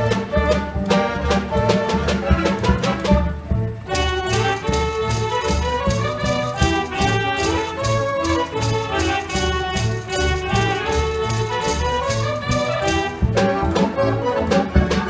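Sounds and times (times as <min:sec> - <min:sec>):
mechanical dance organ playing: 0:00.0 - 0:15.0
snare drum strikes: 0:03.9 - 0:13.8.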